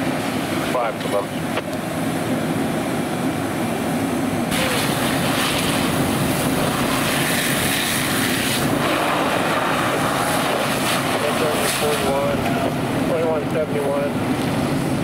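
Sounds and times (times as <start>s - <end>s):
fire engine pump running: 0.0s - 15.0s
hose water hissing on fire: 4.5s - 12.8s.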